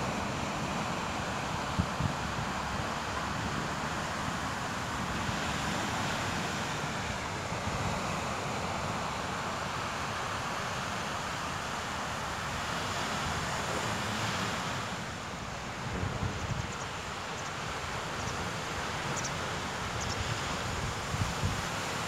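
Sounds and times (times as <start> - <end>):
waves washing up a beach: 0.0 - 22.0
wind buffeting microphone: 15.5 - 16.8.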